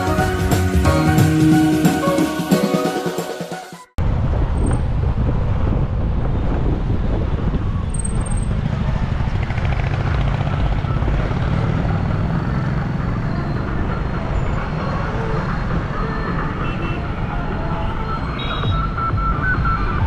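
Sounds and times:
car road and wind noise: 4.0 - 20.0.

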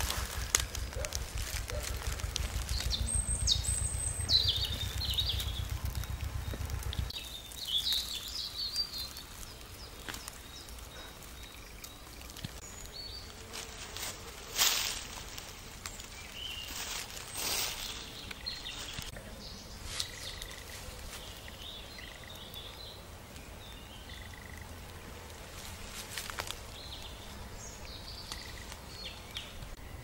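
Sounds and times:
low rumble: 0.0 - 7.6
loud rustle: 0.0 - 8.2, 13.3 - 19.2
songbirds chirping and twittering: 0.0 - 30.0.

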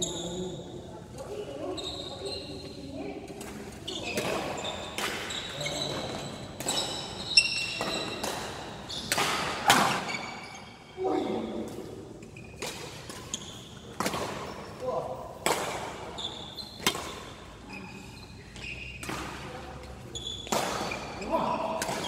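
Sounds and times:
shoes squeaking on court floor: 0.0 - 14.8, 15.5 - 22.0
rackets hitting shuttlecock: 3.2 - 10.5, 12.4 - 17.6, 18.5 - 22.0.

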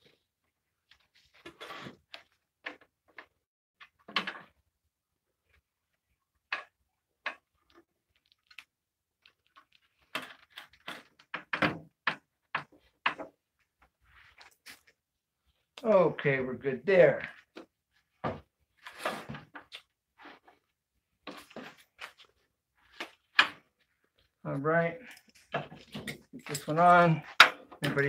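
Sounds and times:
wooden pieces knocking and clicking: 25.1 - 28.0.

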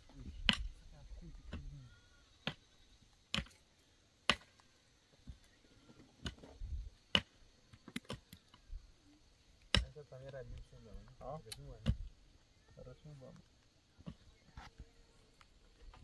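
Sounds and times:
pickaxe striking stony soil: 3.3 - 3.6, 4.3 - 4.5, 9.7 - 9.9.

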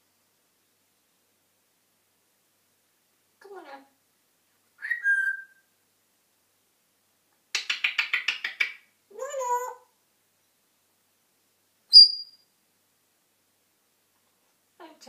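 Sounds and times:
parrot whistling: 4.8 - 5.6, 11.9 - 12.4
parrot wavering call: 4.8 - 5.7, 11.9 - 12.4.

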